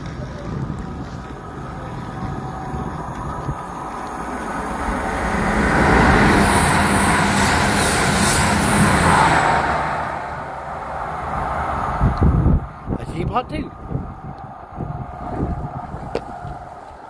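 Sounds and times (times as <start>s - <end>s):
train wheels on rails: 0.0s - 13.0s
diesel train engine hum: 0.0s - 17.0s.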